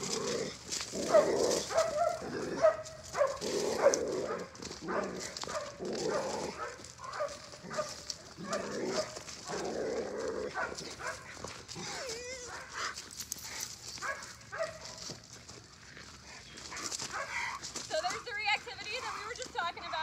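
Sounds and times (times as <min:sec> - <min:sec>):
dog barking: 0:01.0 - 0:09.6, 0:10.5 - 0:11.3, 0:12.4 - 0:12.9, 0:14.0 - 0:15.0, 0:16.7 - 0:17.6
dog whimpering: 0:11.8 - 0:12.7.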